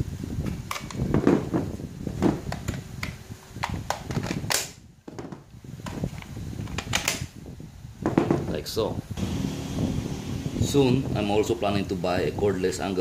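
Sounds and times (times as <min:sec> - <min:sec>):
plastic battery packs clicking: 0:02.5 - 0:04.8.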